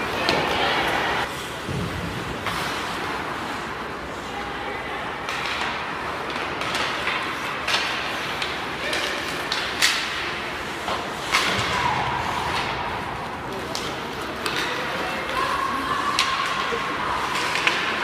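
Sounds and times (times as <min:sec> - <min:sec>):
skates scraping on ice: 0:00.0 - 0:18.0
hockey sticks clacking on puck: 0:05.2 - 0:18.0.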